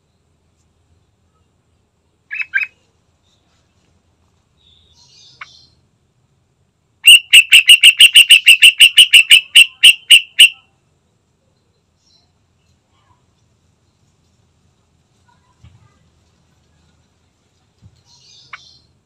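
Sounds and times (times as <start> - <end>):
bird calling: 2.3 - 2.8, 7.0 - 10.6.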